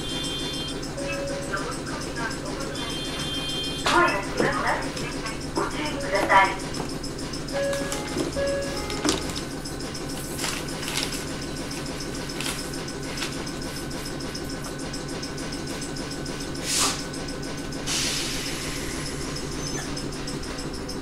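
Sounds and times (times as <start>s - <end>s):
air compressor rhythmic clatter: 0.0s - 21.0s.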